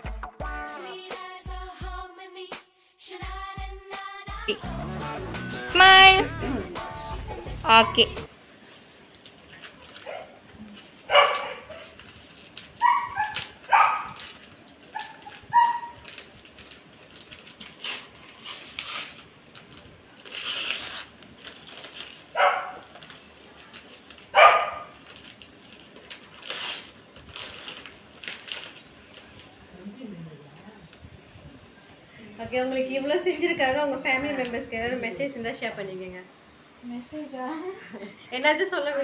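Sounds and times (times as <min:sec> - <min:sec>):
small dog yipping: 0:06.8 - 0:08.4, 0:11.1 - 0:14.2, 0:14.9 - 0:16.1, 0:22.4 - 0:23.0, 0:24.2 - 0:24.9
wrapping paper crinkling and tearing: 0:08.6 - 0:29.6.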